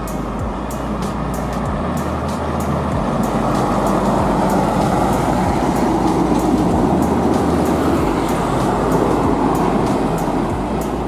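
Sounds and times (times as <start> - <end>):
background music with beat: 0.0 - 11.0
truck driving past: 0.0 - 11.0.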